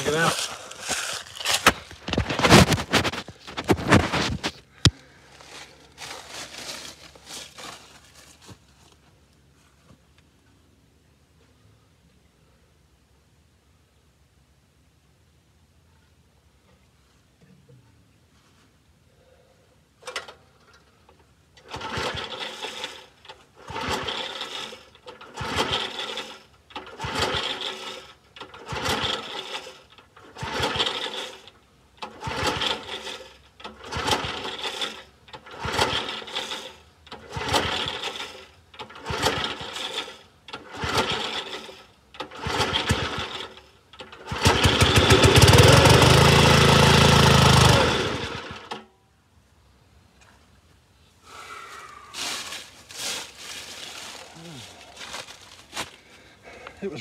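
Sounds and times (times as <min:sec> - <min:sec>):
recoil starter pulls: 0:00.0 - 0:05.0, 0:20.0 - 0:48.9
small gas engine running: 0:00.0 - 0:08.6, 0:21.6 - 0:48.9, 0:51.2 - 0:57.0.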